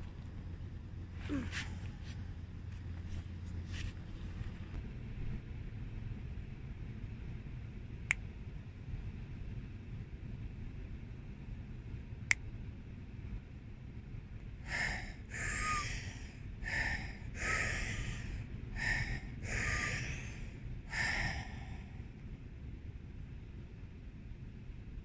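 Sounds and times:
woman breathing forcefully: 1.2s - 2.4s, 14.6s - 22.2s
low rumble: 13.2s - 25.0s.

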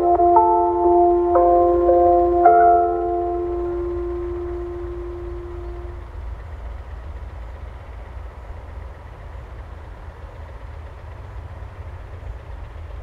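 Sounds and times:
lingering chime tone: 0.0s - 6.0s
low uneven outdoor rumble: 0.0s - 13.0s.

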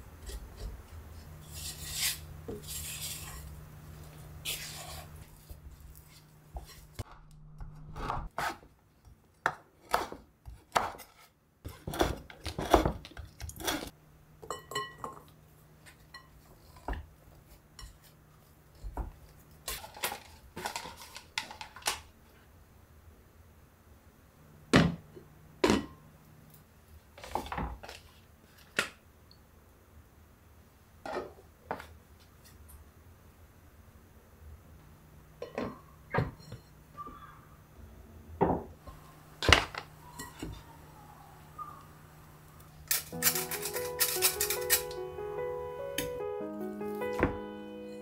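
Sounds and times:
spatula scraping glass bowl: 1.4s - 3.5s.

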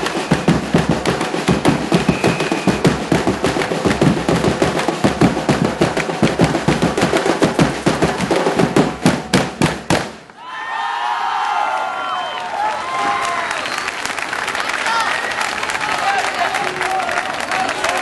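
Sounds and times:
samba drum band playing: 0.0s - 10.2s.

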